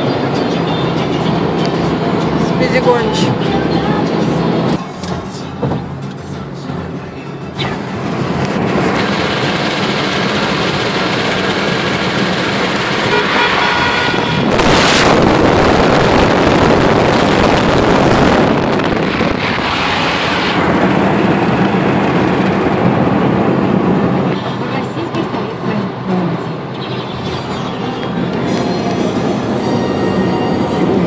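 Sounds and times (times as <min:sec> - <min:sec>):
car road and engine noise: 0:00.0 - 0:31.0
wind noise rushing: 0:07.9 - 0:24.6.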